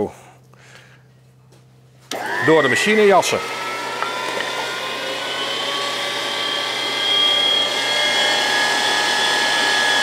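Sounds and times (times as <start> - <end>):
electric meat grinder whining: 2.1 - 10.0.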